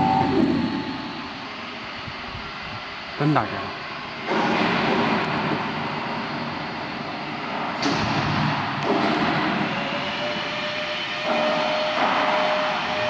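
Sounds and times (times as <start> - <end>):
steady tone: 0.0 - 2.0
mixer machine running: 8.8 - 13.0.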